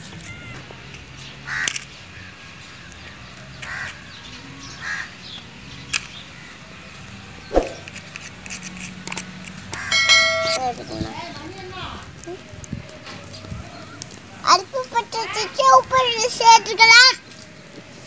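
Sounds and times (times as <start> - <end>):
crows cawing: 1.5 - 1.8, 3.6 - 4.0, 4.8 - 5.1.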